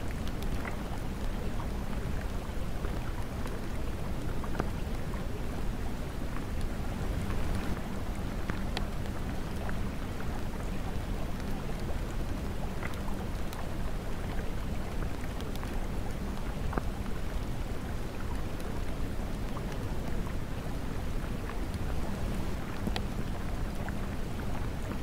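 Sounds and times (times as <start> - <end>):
steady rainfall hiss: 0.0 - 25.0.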